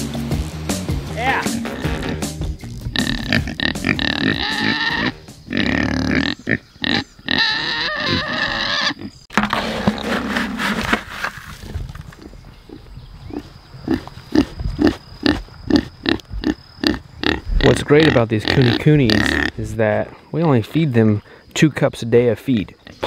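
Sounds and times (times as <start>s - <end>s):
pigs squealing: 1.4s - 2.3s, 2.9s - 9.2s, 13.3s - 19.6s
scoop rustling through dry feed: 9.4s - 11.7s.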